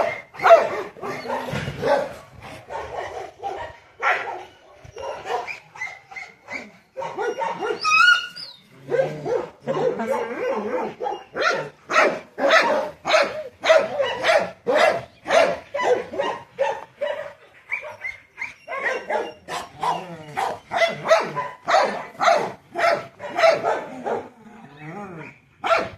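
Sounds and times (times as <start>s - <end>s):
dog barking: 0.0s - 8.0s, 8.9s - 24.3s, 25.6s - 25.9s
dog whining: 4.5s - 9.1s.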